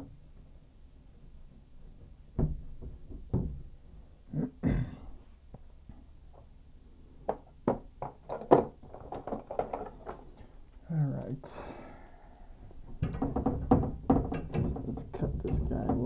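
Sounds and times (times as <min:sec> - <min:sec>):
heavy knocks on pipes: 0:02.4 - 0:03.7, 0:12.9 - 0:16.0.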